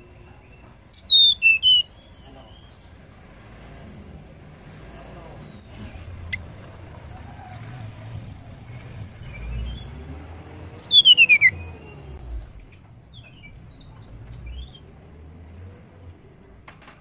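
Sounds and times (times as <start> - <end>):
bird trilled whistle song: 0.6 - 2.8, 9.2 - 13.9.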